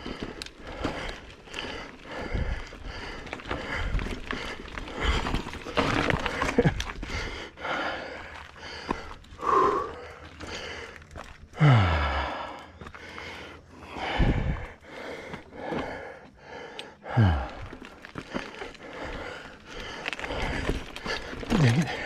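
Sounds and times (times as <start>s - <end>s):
mountain bike rattling over rocks: 0.0s - 22.0s
wind on microphone: 14.1s - 14.7s.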